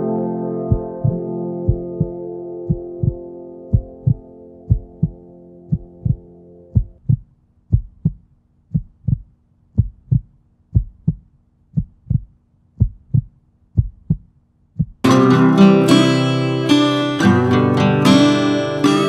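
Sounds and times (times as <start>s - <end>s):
heartbeat thumps: 0.7s - 15.1s.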